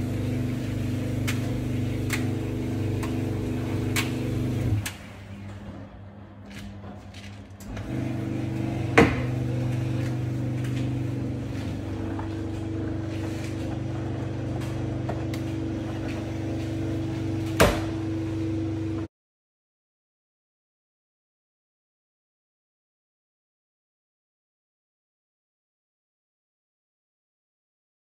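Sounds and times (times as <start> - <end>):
steady mechanical hum: 0.0 - 19.1.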